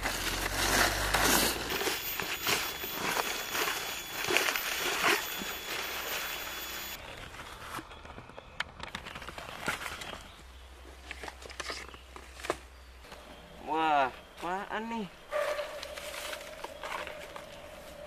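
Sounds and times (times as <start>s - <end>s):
dry leaves crunching and rustling: 0.0s - 5.7s, 15.5s - 18.0s.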